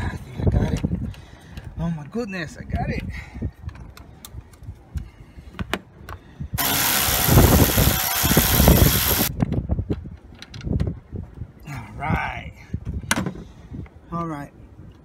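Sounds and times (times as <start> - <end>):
electric ratchet motor running: 6.6 - 9.3.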